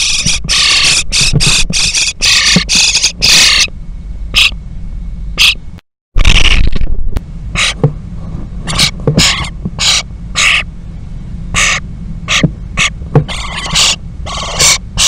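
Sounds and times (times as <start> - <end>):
starling nestlings hissing calls: 0.0 - 3.7, 4.3 - 4.6, 5.4 - 5.6, 7.6 - 7.8, 8.6 - 10.7, 11.5 - 15.0
steady low hum: 0.0 - 15.0.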